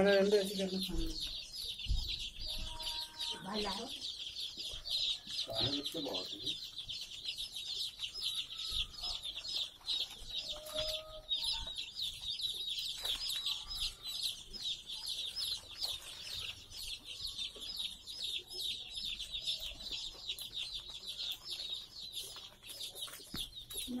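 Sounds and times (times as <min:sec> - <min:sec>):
chicks peeping: 0:00.0 - 0:24.0.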